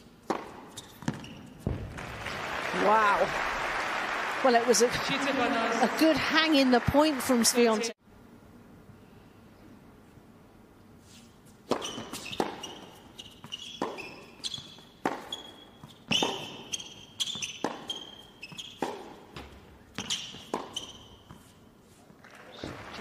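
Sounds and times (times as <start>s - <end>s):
racket striking tennis ball: 0.0s - 2.0s, 11.6s - 21.5s
tennis ball bouncing: 0.0s - 2.1s, 11.6s - 21.6s
sneakers squeaking on court: 0.2s - 1.8s, 11.7s - 21.7s.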